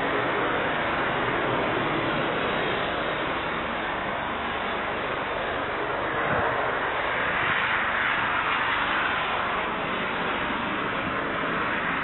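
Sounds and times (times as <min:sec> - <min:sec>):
distant jet engines rushing: 0:00.0 - 0:12.0.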